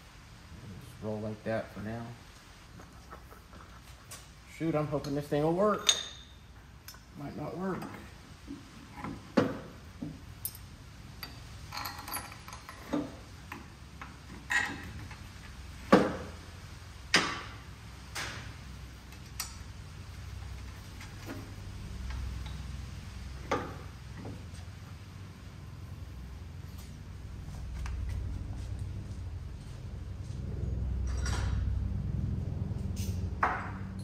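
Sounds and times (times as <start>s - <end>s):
low steady hum: 0.0s - 34.0s
metal clinks and knocks: 10.4s - 13.2s, 31.0s - 31.7s.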